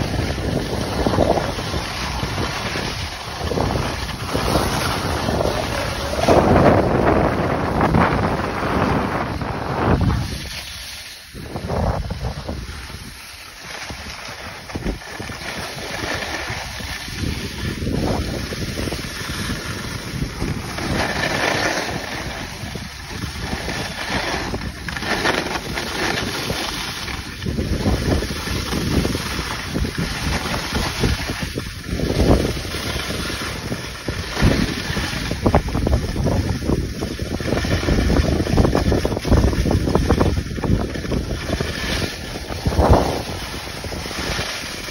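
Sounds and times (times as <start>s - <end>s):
skis scraping on hard snow: 0.0s - 44.9s
wind rushing over microphone: 0.0s - 44.9s.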